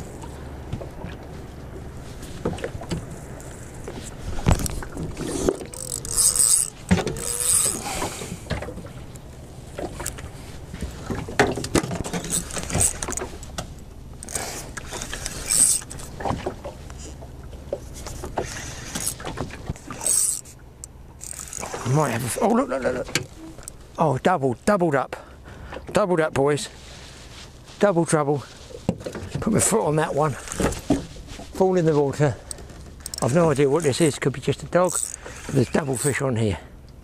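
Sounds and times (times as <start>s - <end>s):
fishing reel winding: 4.5s - 8.0s, 12.1s - 13.4s, 14.2s - 16.1s, 16.9s - 17.2s, 18.5s - 19.2s, 19.8s - 22.1s, 32.5s - 34.2s, 34.8s - 36.2s
knocks and clicks on boat hull: 6.8s - 7.2s, 10.8s - 13.8s.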